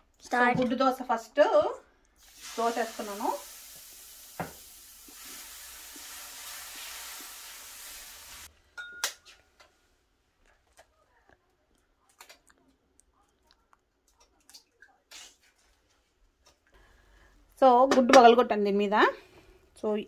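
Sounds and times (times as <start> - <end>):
batter sizzling on a pan: 2.2 - 8.5.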